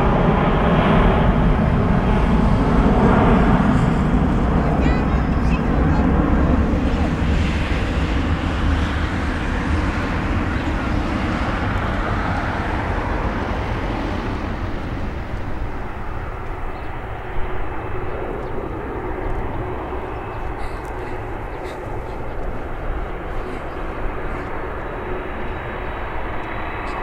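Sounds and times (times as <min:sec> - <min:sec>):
jet engines rumbling: 0:00.0 - 0:27.0.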